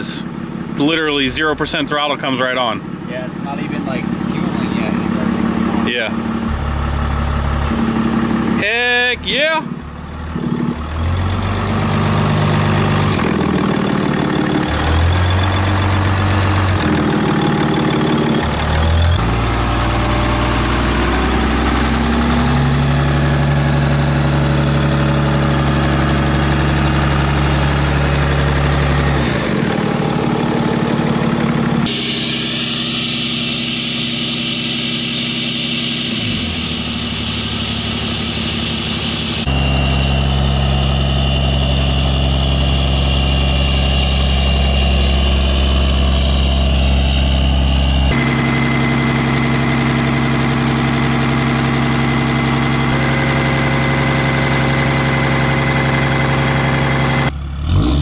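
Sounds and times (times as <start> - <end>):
diesel engine idling: 0.0 - 57.9
loud hiss: 31.9 - 39.5.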